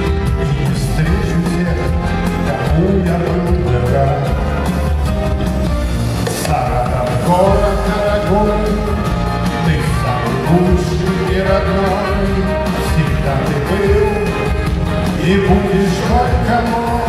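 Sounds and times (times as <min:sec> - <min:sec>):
man singing: 0:00.0 - 0:05.1, 0:06.2 - 0:17.0
live band playing: 0:00.0 - 0:17.0.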